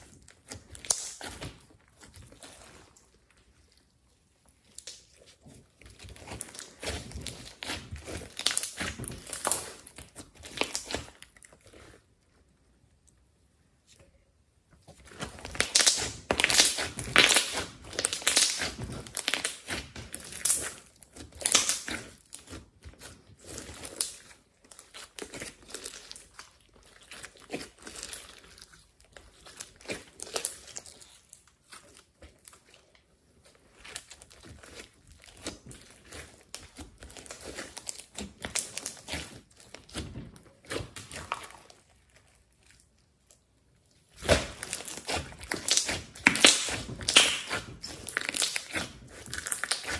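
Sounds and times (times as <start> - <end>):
slime crackling and popping: 0.0 - 12.1, 14.9 - 49.9.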